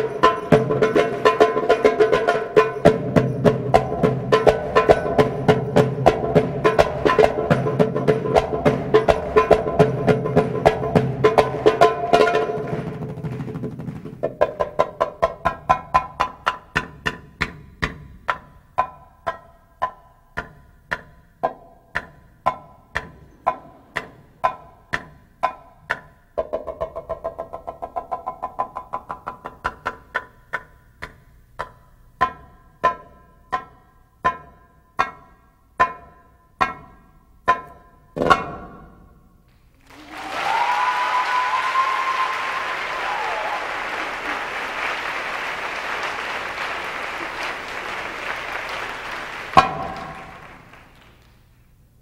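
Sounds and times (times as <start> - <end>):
audience applause and cheering: 39.8 - 51.5.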